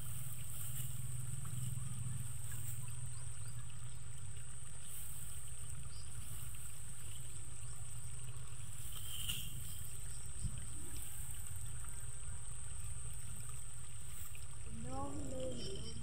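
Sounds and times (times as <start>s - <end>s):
rice stalks rustling: 0.0s - 2.9s, 4.8s - 8.0s, 8.6s - 11.6s
steady low rumble: 0.0s - 16.0s.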